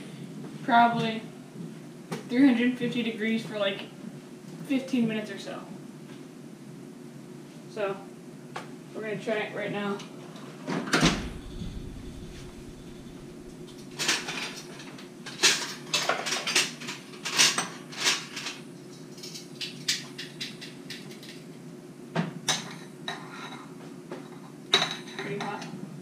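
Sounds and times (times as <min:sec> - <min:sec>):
steady low hum: 0:10.9 - 0:15.6.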